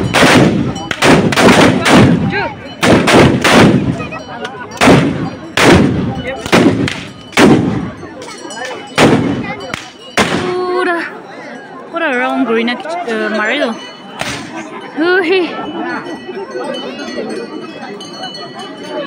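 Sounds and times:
black-powder gunshots: 0:00.0 - 0:04.0, 0:04.8 - 0:07.8, 0:09.0 - 0:10.5.

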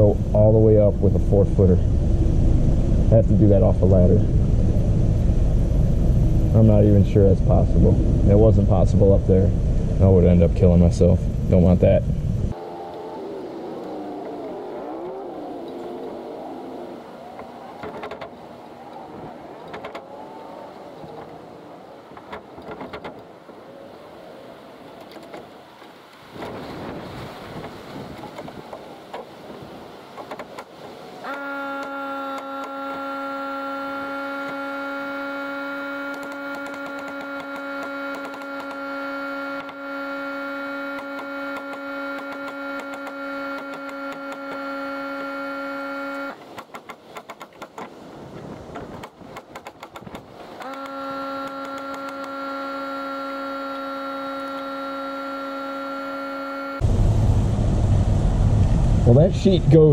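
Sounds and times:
steady machine hum: 0:00.0 - 0:19.8, 0:31.3 - 0:46.4, 0:50.4 - 0:59.9.

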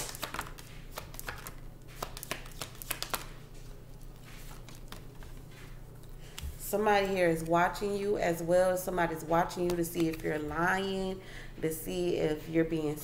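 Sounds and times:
cards being shuffled: 0:00.0 - 0:06.6.

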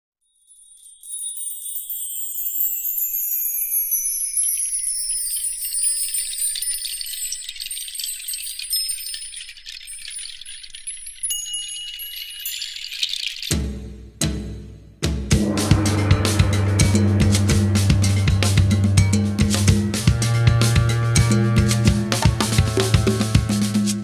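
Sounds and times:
shimmering chime sparkles: 0:00.2 - 0:13.6
steady high tone: 0:15.4 - 0:21.1.

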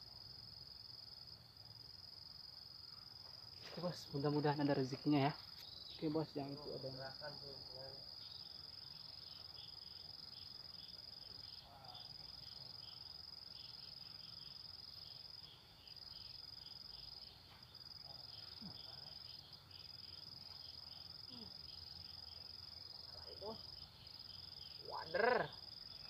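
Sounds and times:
faint pulsing insect trill: 0:00.0 - 0:26.0
insects trilling: 0:00.0 - 0:26.0.

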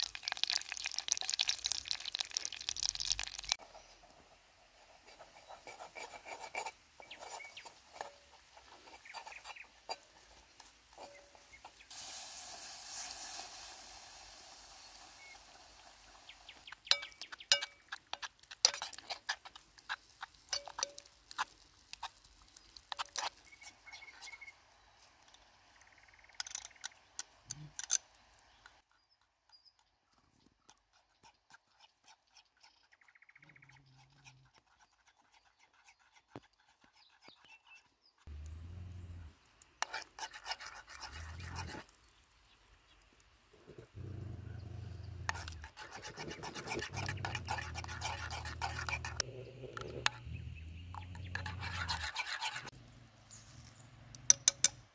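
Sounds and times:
metal spoon scraping a pot: 0:05.1 - 0:12.0, 0:16.6 - 0:24.5, 0:26.4 - 0:28.0, 0:39.8 - 0:42.0, 0:45.0 - 0:52.7, 0:53.4 - 0:54.8
steady hiss: 0:11.8 - 0:16.7.

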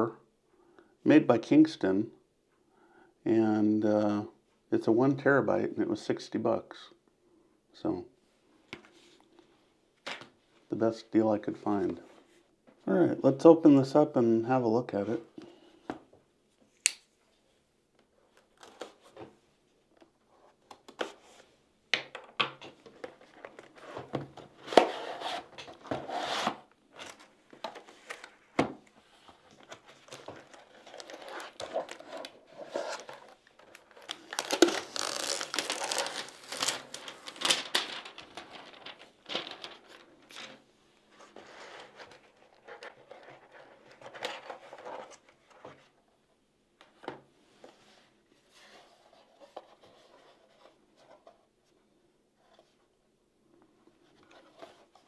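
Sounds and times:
plastic wrapping crinkling: 0:29.6 - 0:40.6.

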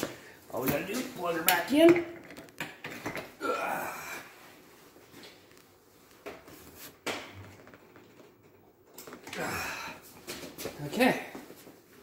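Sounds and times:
breath of effort: 0:09.3 - 0:10.1.

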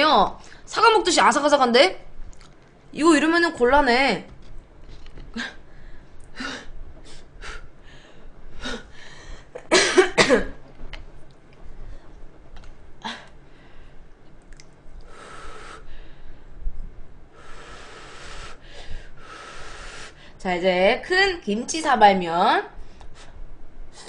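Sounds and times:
person coughing: 0:09.6 - 0:10.6.

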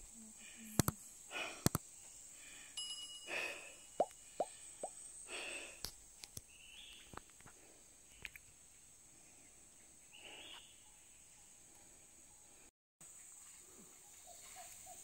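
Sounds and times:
faint clicks: 0:01.6 - 0:01.8, 0:05.8 - 0:08.5.

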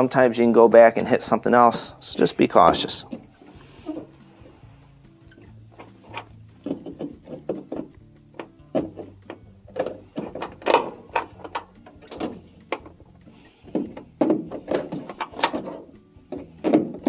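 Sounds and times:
hose scraping against plastic: 0:02.6 - 0:08.0, 0:09.8 - 0:17.0
knocks and clicks on plastic: 0:05.8 - 0:13.0, 0:13.7 - 0:17.0.

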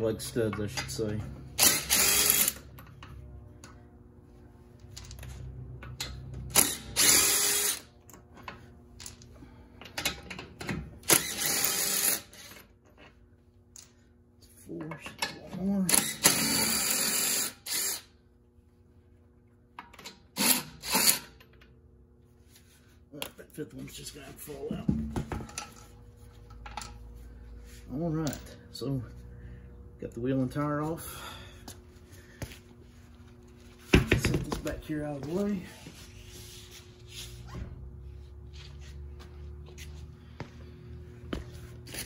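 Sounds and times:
impact wrench spinning bolts: 0:01.6 - 0:03.2, 0:05.8 - 0:07.9, 0:11.0 - 0:12.7, 0:15.9 - 0:18.1, 0:19.9 - 0:21.7.

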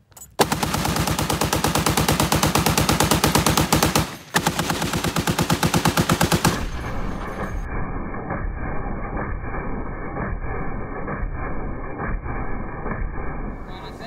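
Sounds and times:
heavy machine gun firing bursts: 0:00.4 - 0:07.7.

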